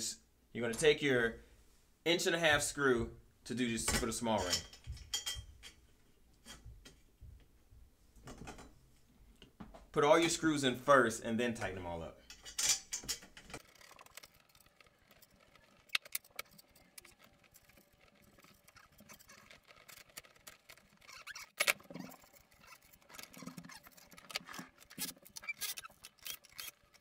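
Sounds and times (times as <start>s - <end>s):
metallic clicks of screws: 12.3s - 27.0s.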